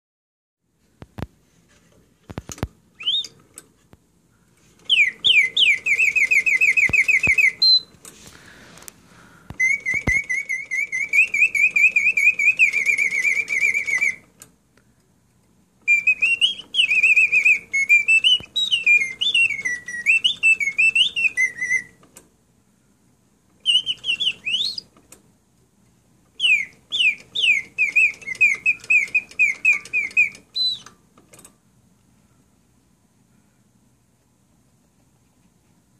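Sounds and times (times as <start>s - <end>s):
mechanical bird whistling trills: 3.0s - 3.4s, 4.8s - 7.9s, 9.5s - 14.3s, 15.8s - 22.0s, 23.6s - 24.9s, 26.4s - 31.0s
mechanism clicks: 23.5s - 31.6s.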